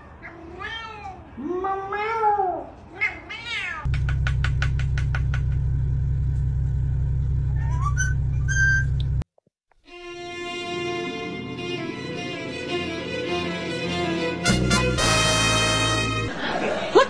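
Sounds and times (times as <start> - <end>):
cat meowing: 0.1 - 3.9.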